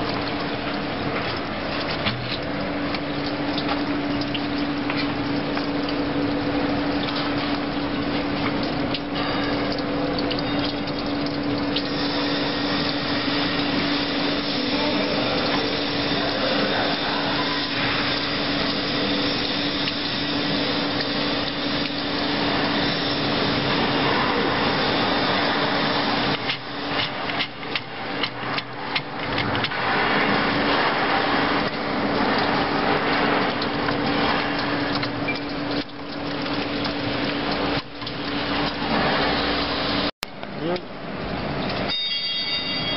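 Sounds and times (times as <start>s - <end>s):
machinery humming and hissing: 3.8s - 28.2s.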